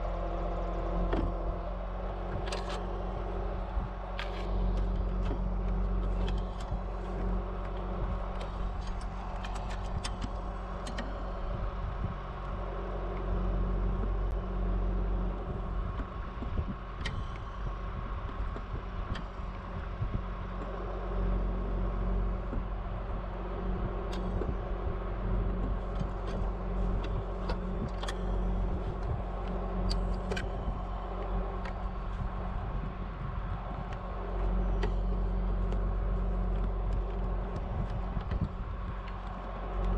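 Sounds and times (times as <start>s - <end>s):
truck engine idling: 0.0s - 39.9s
wire clicking and scraping: 2.0s - 12.6s, 23.4s - 39.9s.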